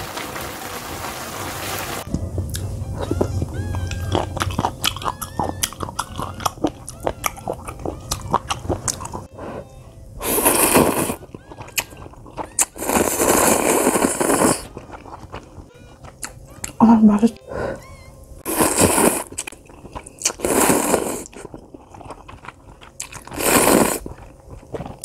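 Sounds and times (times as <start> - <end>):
slurping noodles: 4.0 - 16.4, 18.5 - 25.0.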